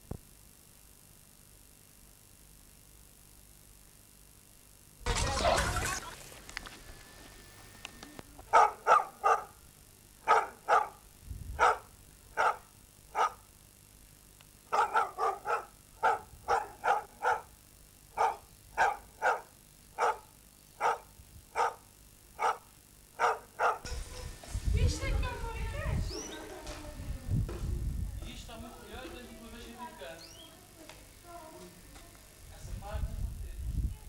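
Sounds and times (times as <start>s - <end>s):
dog barking: 8.5s - 9.6s, 10.2s - 11.0s, 11.6s - 13.5s, 14.7s - 17.6s, 18.2s - 23.9s.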